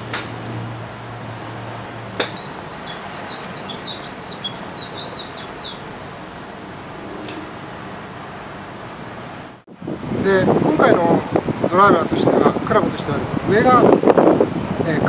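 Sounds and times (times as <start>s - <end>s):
golf club striking ball: 0.0s - 0.5s, 2.0s - 5.2s
songbird chirping: 0.2s - 9.2s.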